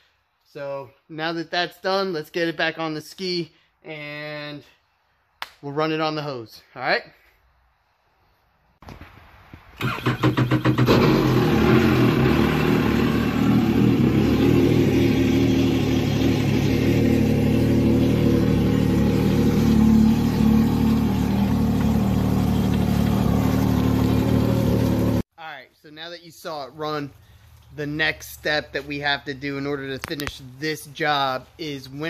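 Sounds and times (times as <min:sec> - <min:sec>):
electric starter cranking: 0:09.8 - 0:14.2
engine idling: 0:09.8 - 0:25.2.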